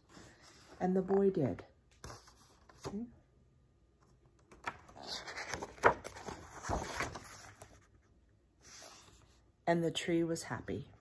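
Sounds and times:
book pages turning: 1.9s - 3.1s, 4.0s - 9.4s
paper rustling and crackling: 4.4s - 8.0s.

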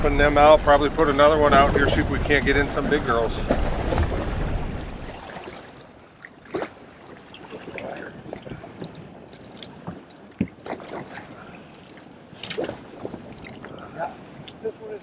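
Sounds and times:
water lapping against boat hull: 0.0s - 15.0s.

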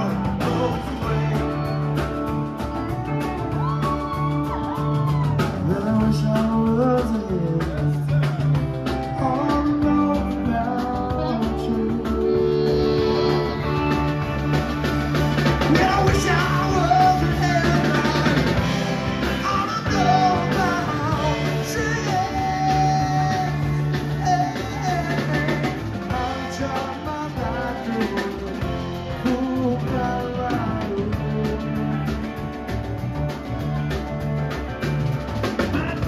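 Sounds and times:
live rock band playing: 0.0s - 36.0s
amplified harmonica wailing: 11.2s - 15.2s.

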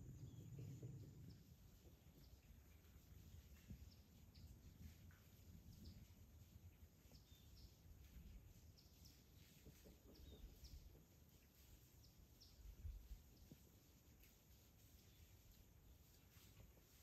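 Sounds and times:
low rumble: 0.0s - 1.5s.

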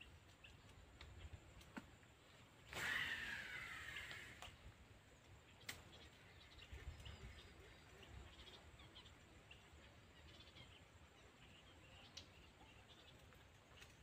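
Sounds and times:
bird chirps: 5.2s - 14.0s.

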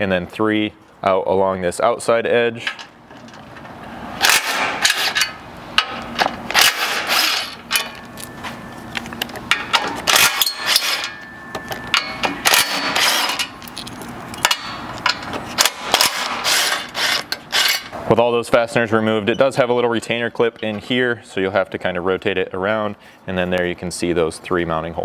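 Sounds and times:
metal clinks and rattles: 9.0s - 16.2s
cordless ratchet bursts: 15.6s - 17.9s.

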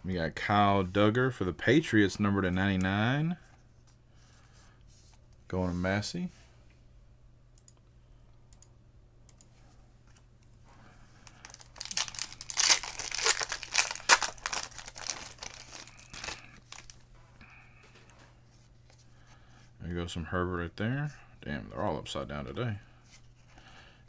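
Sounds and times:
foil wrapper tearing and crinkling: 11.4s - 17.0s.

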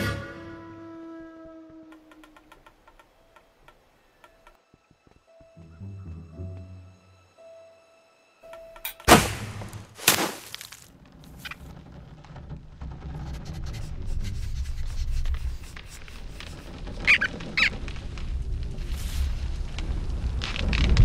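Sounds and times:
short high squeaks: 16.3s - 17.8s.

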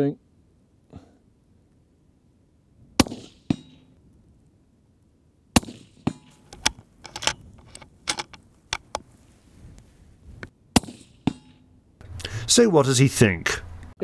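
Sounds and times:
rifle shot: 3.0s - 3.8s, 5.6s - 6.3s
sharp clicks and knocks: 6.1s - 9.1s.

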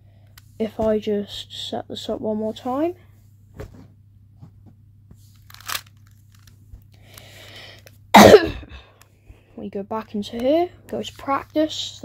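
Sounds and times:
puzzle cube turning: 5.3s - 7.9s.

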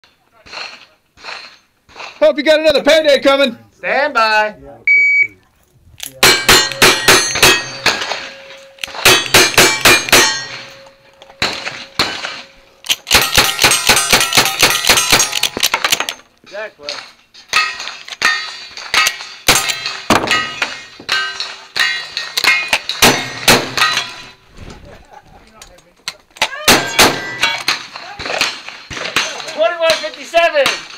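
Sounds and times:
gunshots: 6.2s - 10.8s, 11.4s - 16.0s, 17.5s - 24.1s, 26.6s - 30.9s
steel target ringing: 6.2s - 15.4s, 17.5s - 24.4s, 26.7s - 27.7s.

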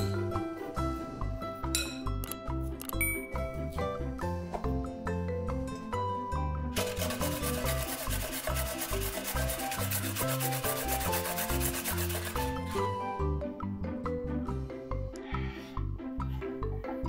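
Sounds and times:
background music: 0.0s - 17.0s
carrot scraping on metal grater: 6.8s - 12.7s.

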